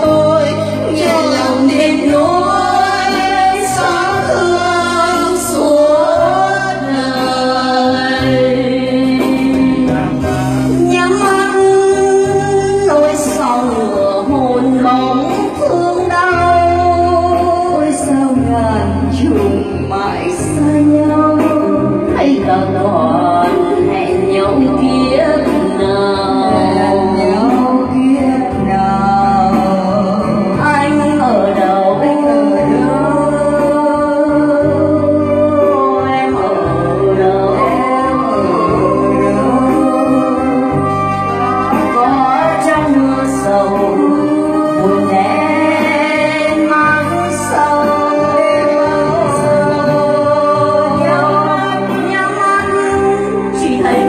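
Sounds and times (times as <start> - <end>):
women singing through microphones: 0.0 - 54.0.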